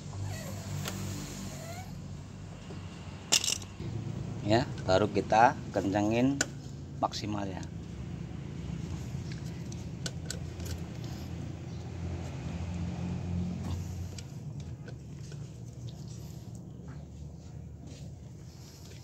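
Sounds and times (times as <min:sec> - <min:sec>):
vehicle engine rumble: 0:00.0 - 0:19.0
socket wrench metallic clinks: 0:03.3 - 0:03.7.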